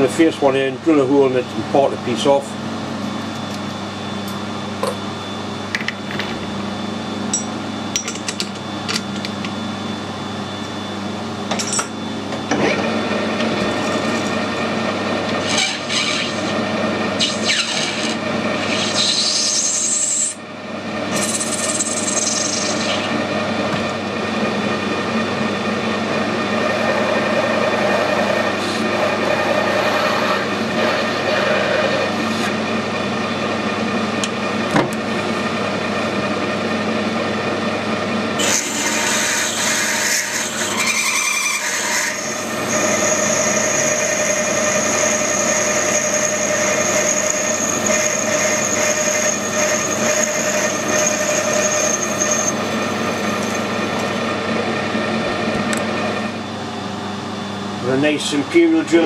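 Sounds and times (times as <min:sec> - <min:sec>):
lathe humming: 0:06.6 - 0:59.0
drill high whine: 0:10.6 - 0:33.7, 0:38.4 - 0:56.4.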